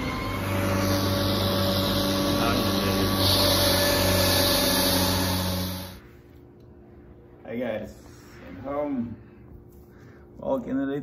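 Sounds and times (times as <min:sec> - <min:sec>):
small gas engine running: 0:00.0 - 0:06.0.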